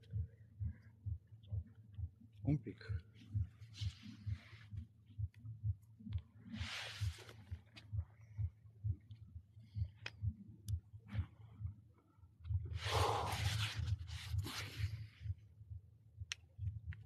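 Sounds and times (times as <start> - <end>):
scratchy rustling and rubbing: 13.2 - 15.0.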